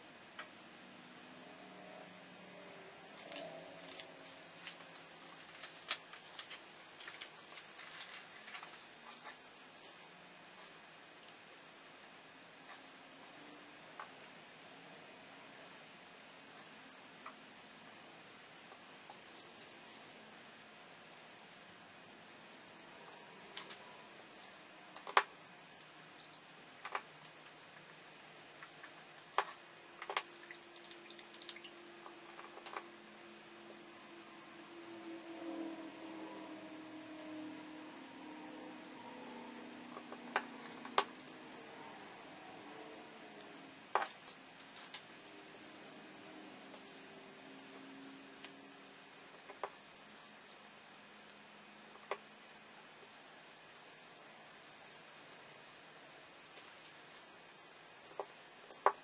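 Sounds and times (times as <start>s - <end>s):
plastic bag crinkling: 3.2s - 9.8s.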